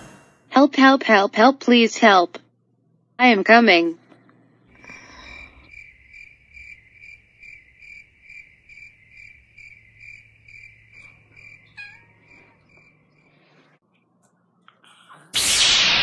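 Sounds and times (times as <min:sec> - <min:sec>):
cricket chirping: 0:04.8 - 0:13.4.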